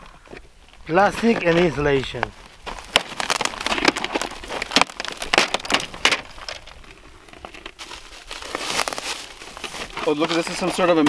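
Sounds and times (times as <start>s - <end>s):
plastic lining crackling and tearing: 2.7s - 11.0s.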